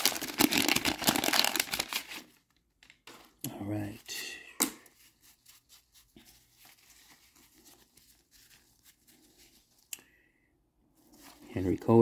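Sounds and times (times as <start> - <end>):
cards rustling and clicking: 0.0 - 3.3.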